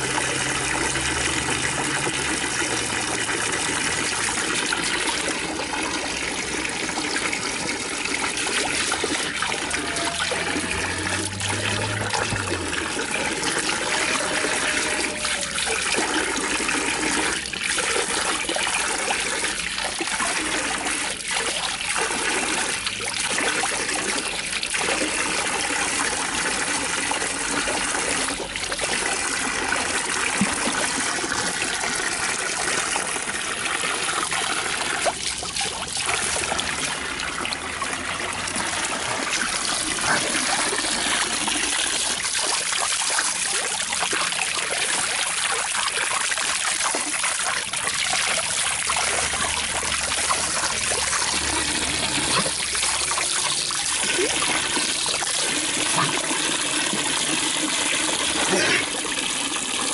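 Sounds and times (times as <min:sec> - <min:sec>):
trickling water: 0:00.0 - 0:59.9.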